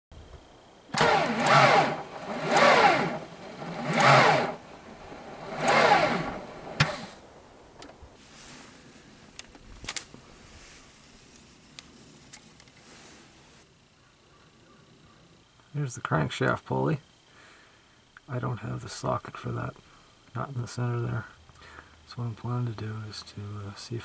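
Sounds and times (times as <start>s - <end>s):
starter motor cranking: 0.9s - 7.2s
sharp click: 6.8s - 7.2s.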